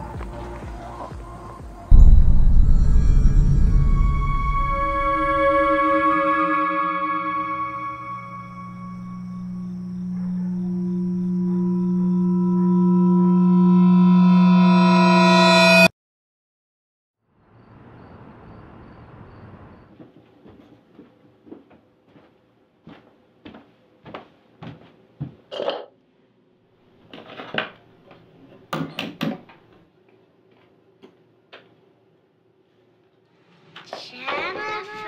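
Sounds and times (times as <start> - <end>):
objects clattering at a sink: 25.5 - 25.9.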